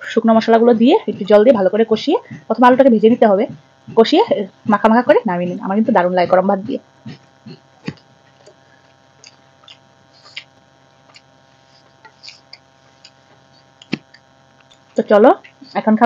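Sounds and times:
faint electrical hum: 0.0s - 16.0s
soft chewing: 7.1s - 15.7s.

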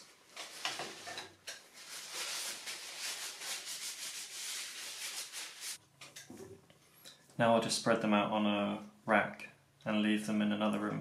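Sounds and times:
paper towel rubbing wooden spoons: 1.7s - 5.8s.

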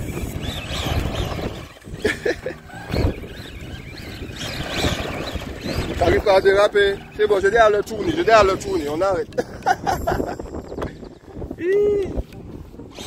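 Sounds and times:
toy truck electric motor: 0.0s - 8.5s.

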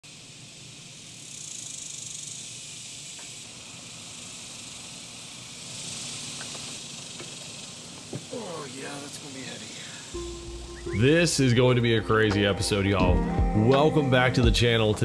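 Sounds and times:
cicadas droning: 0.0s - 13.4s.

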